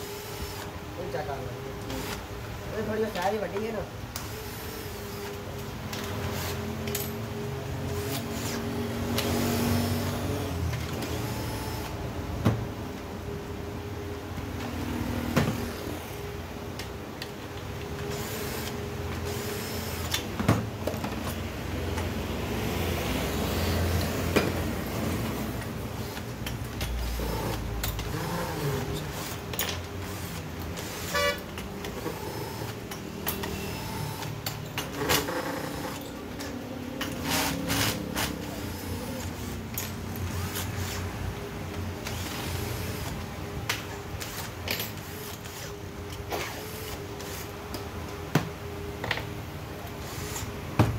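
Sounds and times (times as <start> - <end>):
street traffic: 0.0 - 50.9
metal parts clinking and knocking: 5.8 - 7.4, 39.0 - 40.7, 43.0 - 46.3.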